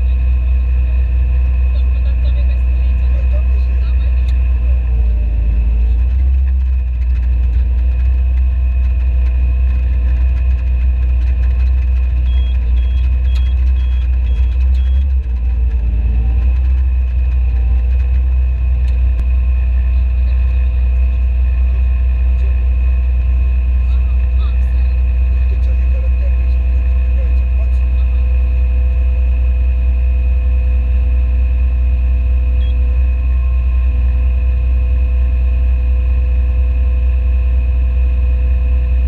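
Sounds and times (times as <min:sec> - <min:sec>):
tractor engine droning: 0:00.0 - 0:39.0
quick electronic beeps: 0:12.2 - 0:15.2.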